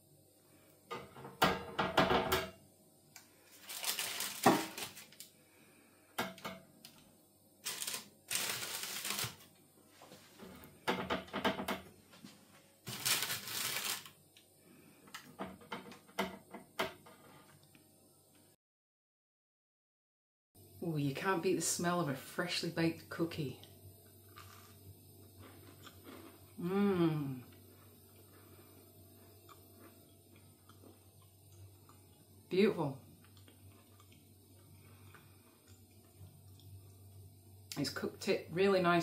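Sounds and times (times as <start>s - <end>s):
parchment paper rustling: 3.5s - 5.2s, 7.6s - 9.5s, 12.8s - 14.2s.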